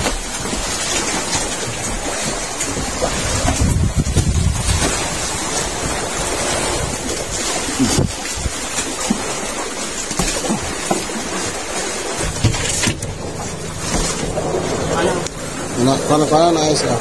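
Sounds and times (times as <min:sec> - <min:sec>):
waves slapping a boat: 0:00.0 - 0:17.0
wind buffeting microphone: 0:01.7 - 0:08.9
low rumble: 0:12.0 - 0:17.0.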